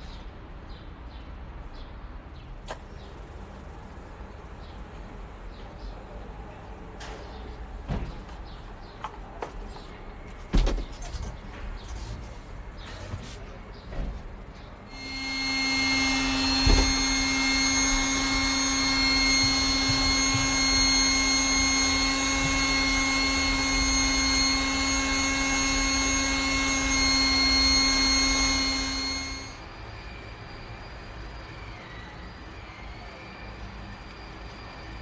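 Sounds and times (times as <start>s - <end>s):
electric blower whine and air rush: 14.9s - 32.0s.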